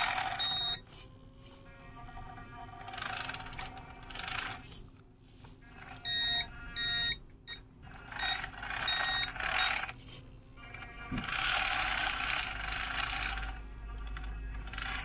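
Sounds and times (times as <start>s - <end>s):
forklift warning beeps: 0.0s - 0.9s, 6.0s - 9.8s
electric drive motor whine: 0.0s - 4.6s.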